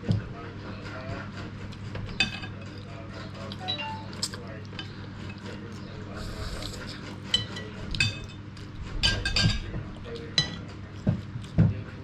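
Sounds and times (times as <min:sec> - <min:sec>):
cutlery clinking on plates: 0:02.0 - 0:02.8, 0:07.2 - 0:08.4, 0:09.0 - 0:11.2.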